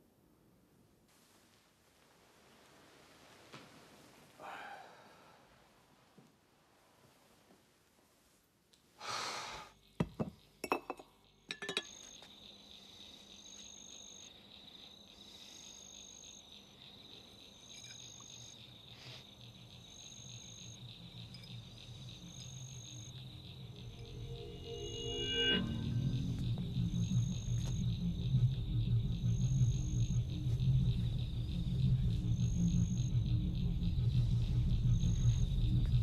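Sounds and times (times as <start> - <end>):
crickets chirping: 3.8 - 5.5, 9.0 - 36.0
glass and ice clinking: 10.0 - 12.0
low hum: 20.4 - 36.0.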